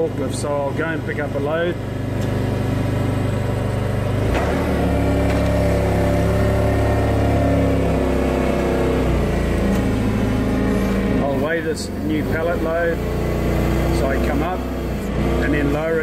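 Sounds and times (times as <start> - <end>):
forklift engine running: 0.0 - 16.0
click: 2.2 - 2.4.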